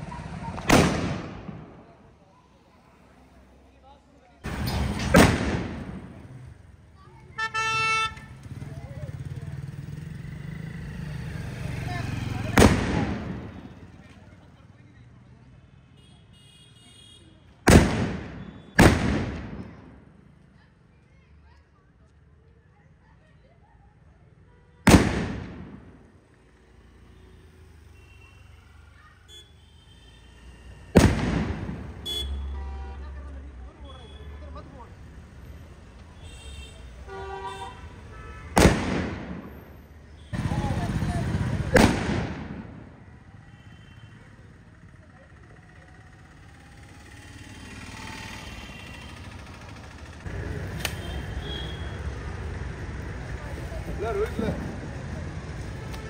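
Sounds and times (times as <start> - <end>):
firecracker bang with echo: 0.4 - 1.9, 4.5 - 6.2, 12.4 - 13.7, 17.7 - 20.0, 24.9 - 26.0, 30.9 - 32.0, 38.5 - 39.6, 41.6 - 42.9
outdoor rumble: 4.4 - 7.2, 44.4 - 56.0.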